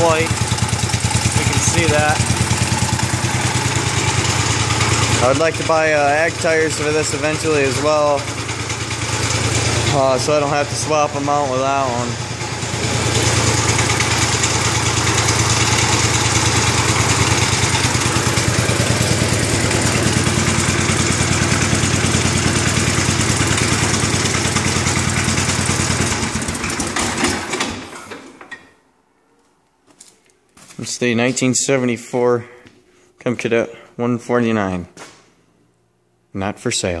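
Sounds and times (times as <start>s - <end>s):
tractor engine running: 0.0s - 28.6s.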